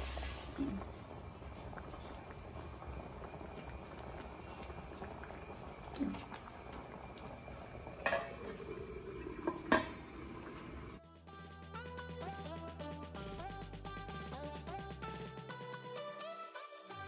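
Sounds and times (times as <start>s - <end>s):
curry bubbling in a pan: 0.0s - 11.0s
metal lid clanking: 8.0s - 8.5s, 9.4s - 10.0s.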